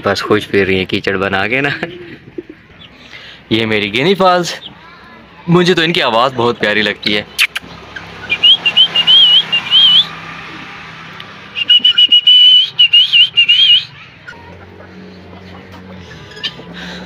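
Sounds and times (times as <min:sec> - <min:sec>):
guinea fowl calling: 0:11.6 - 0:16.7.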